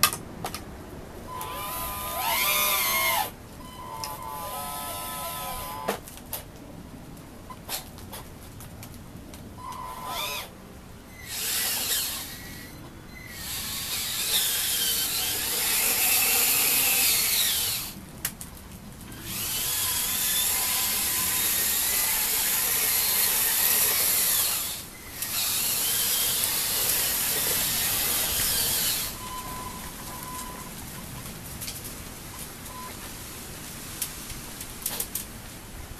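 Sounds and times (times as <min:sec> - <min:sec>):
model truck motors whirring: 0:01.3 - 0:06.0, 0:11.1 - 0:18.0, 0:19.1 - 0:30.7.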